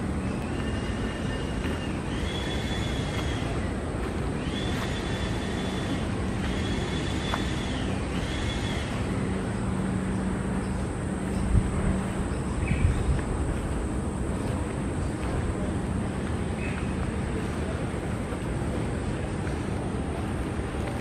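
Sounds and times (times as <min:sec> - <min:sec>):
faint high whistling tones: 0:00.0 - 0:13.1
outdoor background rumble: 0:00.0 - 0:21.0.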